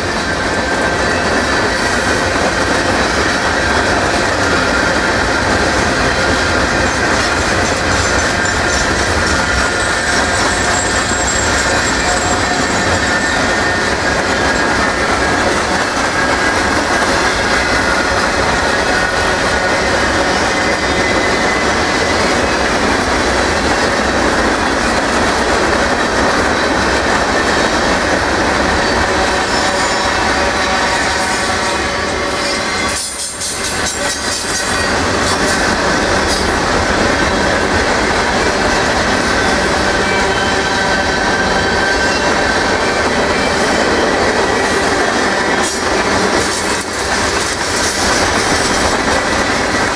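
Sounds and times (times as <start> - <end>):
train wheels rumbling on rail: 0.0 - 49.9
high wheel squeal: 7.3 - 22.6.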